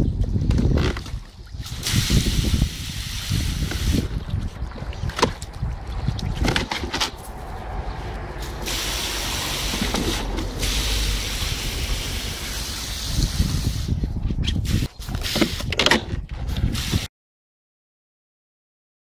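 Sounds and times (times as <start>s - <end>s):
hose spraying water into tub: 1.0s - 4.5s, 8.4s - 14.0s, 14.6s - 15.7s, 16.6s - 17.1s
puppy splashing in water: 3.8s - 7.8s.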